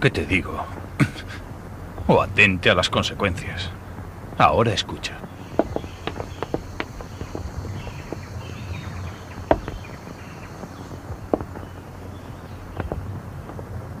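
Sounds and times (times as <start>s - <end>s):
film soundtrack hum and hiss: 0.0s - 14.0s
sharp knocks: 5.3s - 13.8s.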